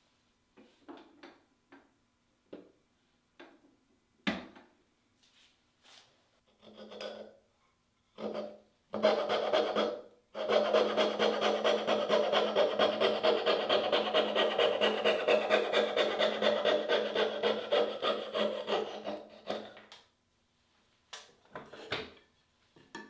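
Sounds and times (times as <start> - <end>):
saw cutting wood: 8.2 - 19.8.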